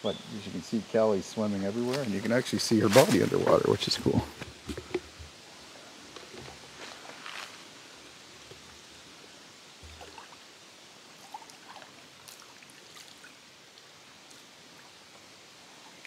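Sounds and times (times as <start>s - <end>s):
water lapping and splashing: 11.2s - 15.0s.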